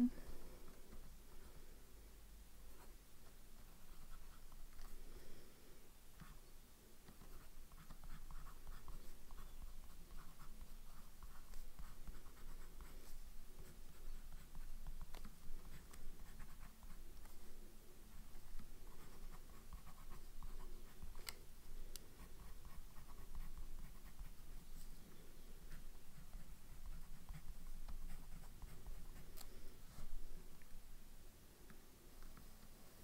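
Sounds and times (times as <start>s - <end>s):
fountain pen scratching on paper: 7.1s - 17.0s, 18.1s - 21.2s, 22.2s - 24.5s, 25.7s - 30.1s.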